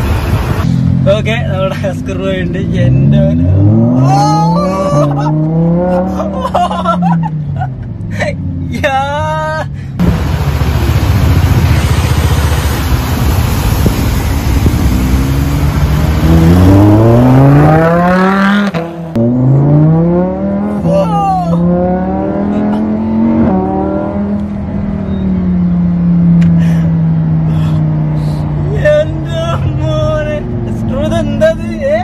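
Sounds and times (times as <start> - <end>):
car engine accelerating: 0.0 - 8.8, 10.0 - 32.0
rushing noise: 10.0 - 19.1.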